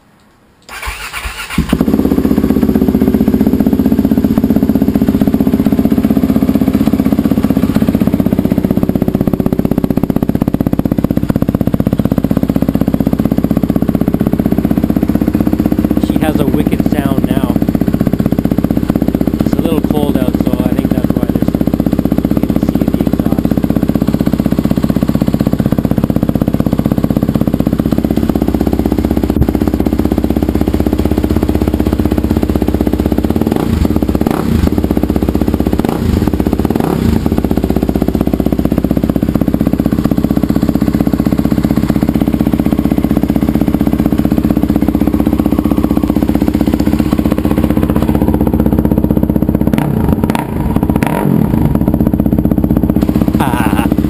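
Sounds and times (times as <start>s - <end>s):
motorcycle engine idling: 0.6s - 54.0s.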